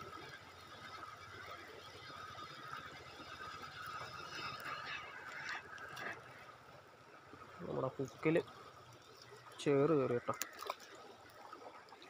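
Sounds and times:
lure churning water surface: 0:00.0 - 0:12.0
sharp water splashes: 0:09.0 - 0:12.0.

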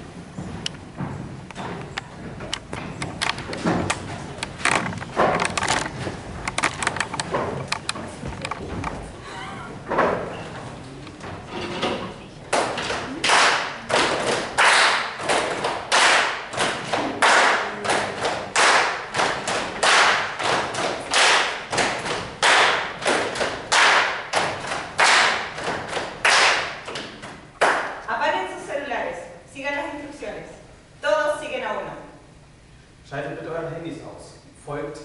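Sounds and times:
group clapping in unison: 0:12.5 - 0:28.1.

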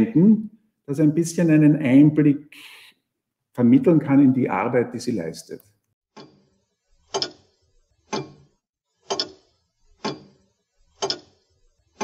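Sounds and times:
clock ticking: 0:09.1 - 0:09.4, 0:10.0 - 0:10.3, 0:11.0 - 0:11.3.

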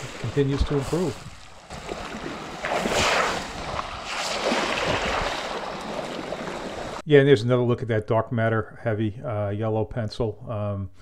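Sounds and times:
water splashing on pebble beach: 0:00.0 - 0:07.0.

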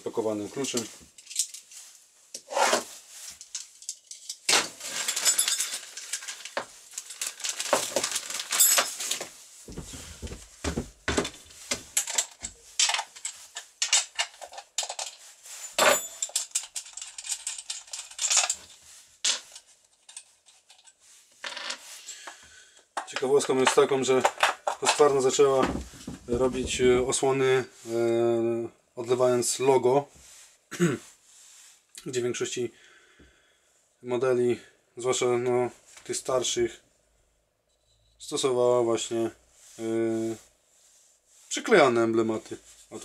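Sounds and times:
plastic wrapping rustling: 0:00.3 - 0:02.3, 0:02.9 - 0:22.2, 0:23.3 - 0:27.4
metal clinks and rattles: 0:01.2 - 0:01.8, 0:03.2 - 0:10.4, 0:11.2 - 0:21.0.

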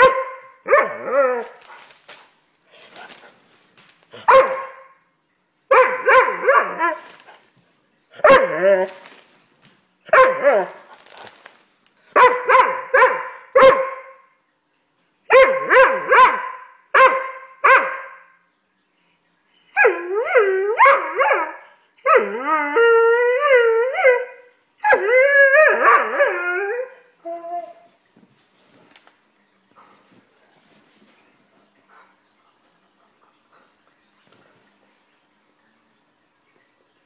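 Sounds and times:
puppy barking: 0:00.0 - 0:01.5, 0:04.2 - 0:04.9, 0:05.7 - 0:07.1, 0:08.2 - 0:08.7, 0:10.1 - 0:10.8, 0:12.2 - 0:14.2, 0:15.3 - 0:18.2, 0:20.7 - 0:22.3
puppy howling: 0:22.0 - 0:27.8.

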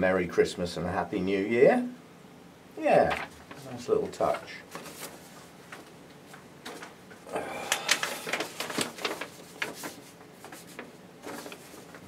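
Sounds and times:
paper rustling and crackling: 0:03.0 - 0:12.0.

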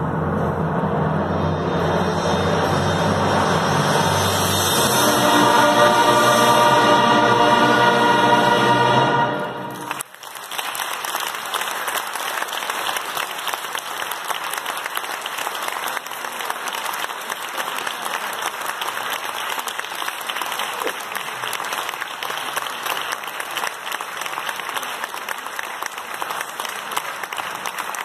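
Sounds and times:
brass band chord: 0:00.3 - 0:10.0
audience applause: 0:04.6 - 0:28.0.

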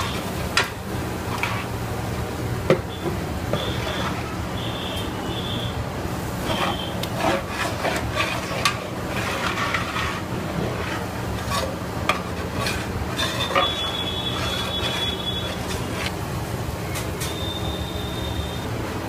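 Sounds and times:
metal spatula scraping metal pot: 0:03.6 - 0:04.4, 0:06.4 - 0:16.2
thin high whistle: 0:06.5 - 0:07.0, 0:13.5 - 0:15.6, 0:16.9 - 0:18.7.

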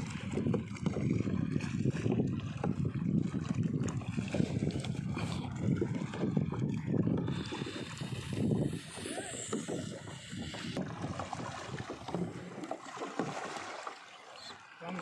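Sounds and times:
wind buffeting microphone: 0:00.0 - 0:13.4
water lapping around kayaks: 0:00.0 - 0:15.0.

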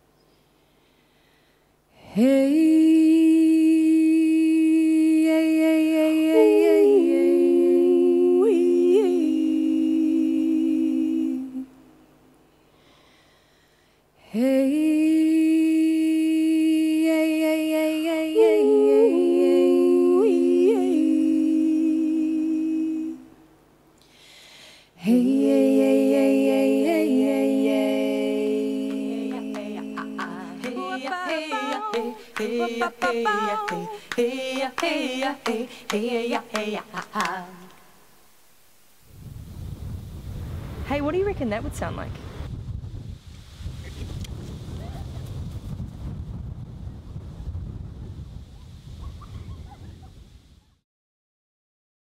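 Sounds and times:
women singing a cappella harmony: 0:01.9 - 0:12.1, 0:14.2 - 0:23.6, 0:24.8 - 0:38.4.

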